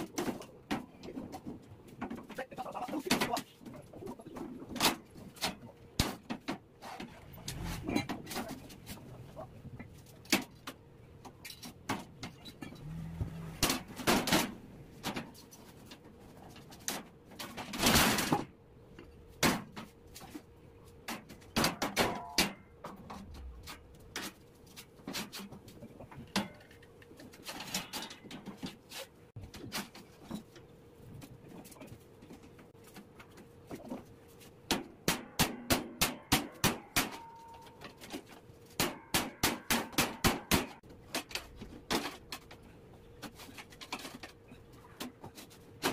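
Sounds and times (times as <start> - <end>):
metal sheets knocking and clanking: 10.2 - 18.5, 21.0 - 24.4, 34.7 - 42.6.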